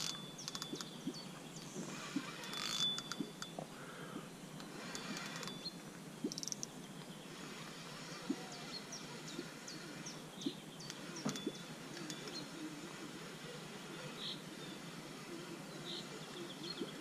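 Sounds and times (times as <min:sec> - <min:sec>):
small birds chirping: 0:00.0 - 0:17.0
fishing reel drag clicking: 0:01.9 - 0:03.5.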